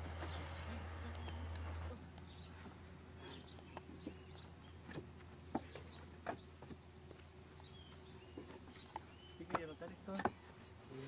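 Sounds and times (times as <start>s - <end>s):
birds chirping faintly: 0.0s - 11.0s
bricks knocking and clinking: 8.4s - 10.4s.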